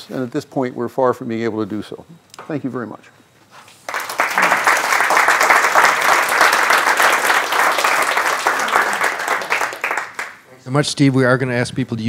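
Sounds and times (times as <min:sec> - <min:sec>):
audience applauding: 0:03.9 - 0:10.4.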